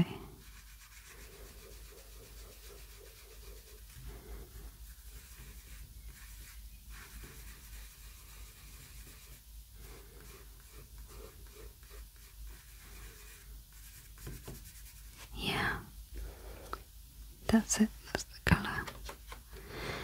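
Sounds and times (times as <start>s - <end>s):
pastel scratching on paper: 0.0s - 15.4s.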